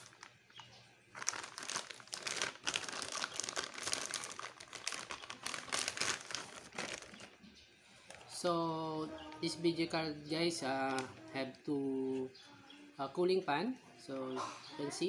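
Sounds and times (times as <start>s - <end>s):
plastic bag crinkling: 0.0s - 8.4s, 10.8s - 11.2s.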